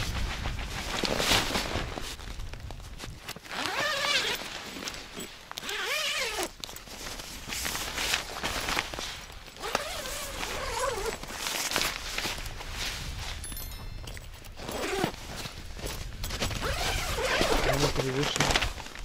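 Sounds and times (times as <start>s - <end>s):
tent zipper being pulled: 3.3s - 13.4s, 14.4s - 18.7s.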